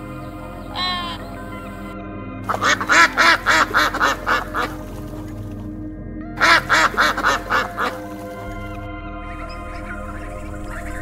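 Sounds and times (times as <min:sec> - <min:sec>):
background music: 0:00.0 - 0:11.0
duck quacking: 0:00.7 - 0:01.3, 0:02.5 - 0:04.8, 0:06.4 - 0:08.1.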